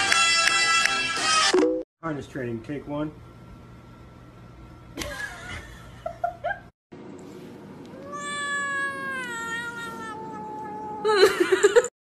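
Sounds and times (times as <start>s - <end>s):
cat meowing: 7.9s - 11.2s.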